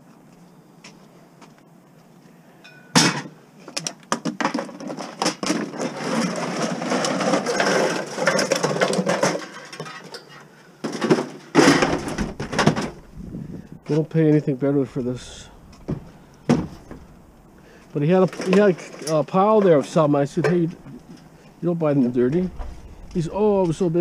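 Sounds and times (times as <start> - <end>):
plastic bottles rustling and knocking: 3.0 - 14.1, 15.4 - 21.7
sheet metal scraping and clattering: 4.8 - 24.0.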